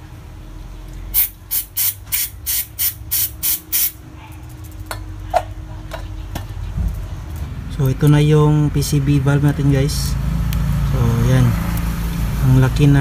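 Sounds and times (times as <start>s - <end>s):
aerosol spray hissing bursts: 1.2s - 4.0s.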